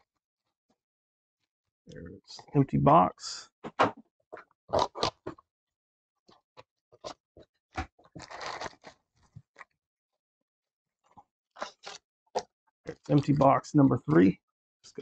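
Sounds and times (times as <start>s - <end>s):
cardboard box crackling: 8.2s - 8.9s.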